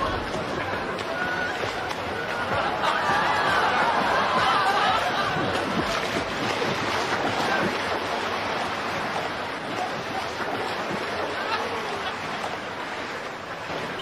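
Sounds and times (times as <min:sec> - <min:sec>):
water splashing from swimming: 0:00.0 - 0:14.0.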